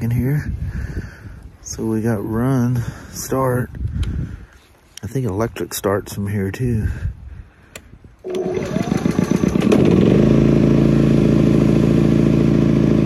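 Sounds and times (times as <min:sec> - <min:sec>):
electric starter cranking: 0:08.2 - 0:13.0
generator engine running: 0:08.2 - 0:13.0.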